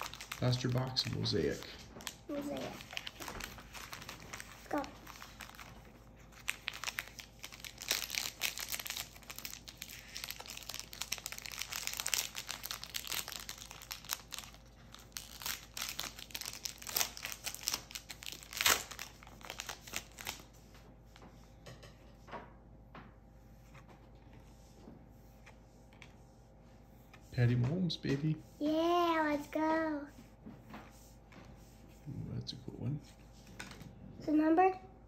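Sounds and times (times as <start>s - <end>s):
cards rustling: 0.0s - 20.6s
foil wrapper crinkling and tearing: 0.0s - 20.6s.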